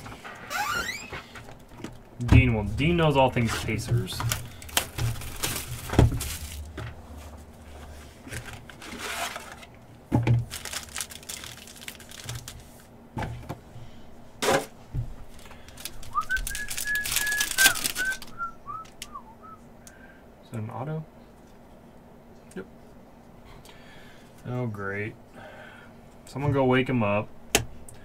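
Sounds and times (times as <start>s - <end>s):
plastic wrappers crinkling: 3.6s - 6.9s, 8.2s - 9.7s, 10.3s - 12.9s, 15.3s - 19.1s
wrappers ripping: 4.3s - 6.7s, 10.4s - 12.8s, 15.7s - 18.5s
whistled notes: 16.1s - 19.6s.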